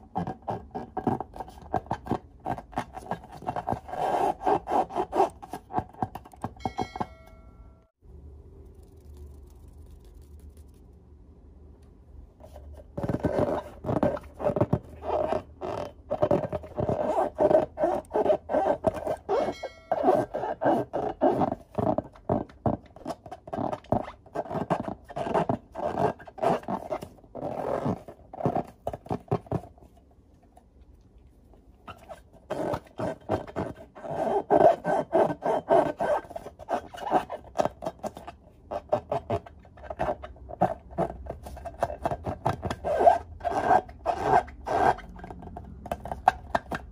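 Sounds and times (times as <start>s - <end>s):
rubbery balloon squeaks: 0.0s - 6.6s, 12.9s - 29.7s, 31.8s - 46.9s.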